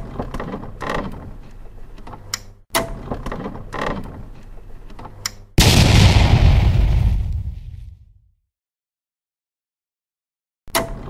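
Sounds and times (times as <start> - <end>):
loud gunfire blast: 5.6 - 8.2.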